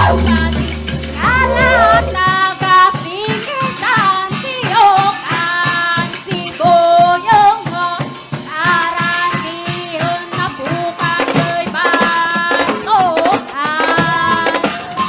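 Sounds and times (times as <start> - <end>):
voices singing: 0.0 - 2.6
quick percussion beat: 0.0 - 15.0.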